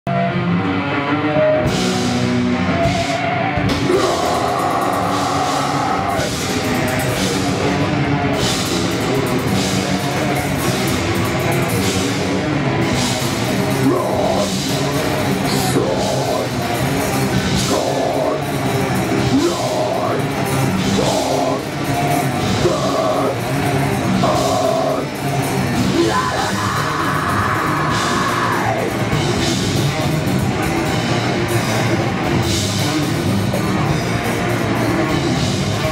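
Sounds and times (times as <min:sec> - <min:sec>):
bass guitar: 0:00.0 - 0:35.9
distorted electric guitars: 0:00.0 - 0:35.9
drum kit with crashing cymbals: 0:01.6 - 0:35.9
vocalist singing: 0:03.7 - 0:06.5, 0:13.7 - 0:16.8, 0:17.4 - 0:18.6, 0:19.2 - 0:23.5, 0:24.1 - 0:29.1.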